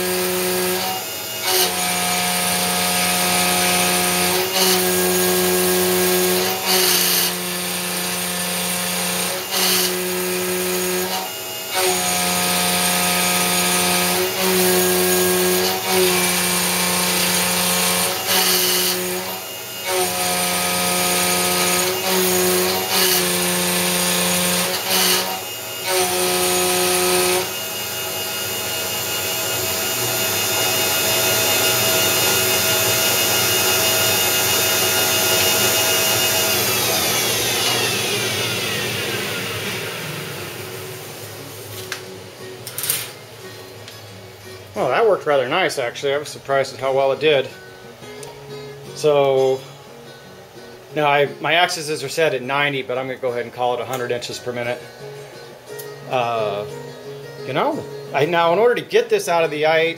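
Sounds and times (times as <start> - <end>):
milling machine cutting whine: 0.0 - 41.6.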